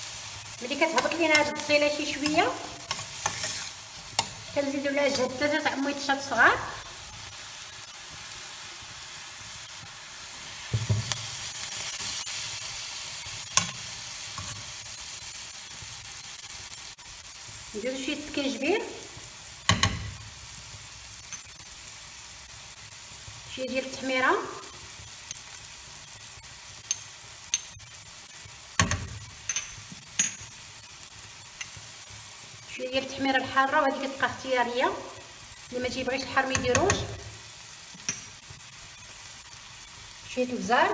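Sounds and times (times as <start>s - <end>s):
vegetables sizzling in oil: 0.0s - 40.9s
metal spoon stirring: 0.7s - 5.4s, 28.9s - 30.5s
spoon knocking on pan: 10.8s - 11.2s, 19.7s - 20.2s, 36.5s - 37.2s.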